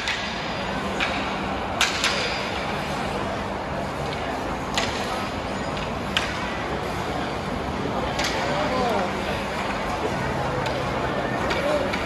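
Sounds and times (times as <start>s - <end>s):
hockey sticks and puck clacking: 0.0s - 2.6s, 4.0s - 6.6s, 8.1s - 9.1s, 10.1s - 12.0s.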